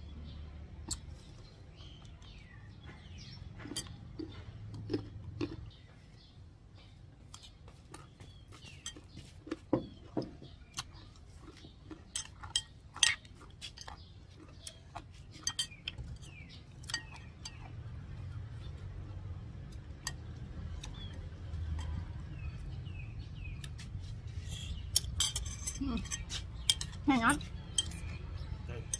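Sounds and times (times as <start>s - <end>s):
metal spoon scraping ceramic bowl: 24.6s - 28.9s.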